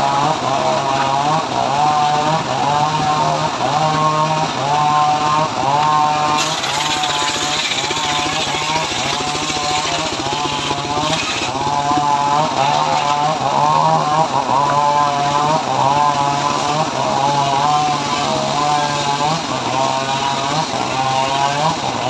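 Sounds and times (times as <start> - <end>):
circular sawmill engine running: 0.0 - 22.0
saw blade cutting wood: 0.0 - 22.0.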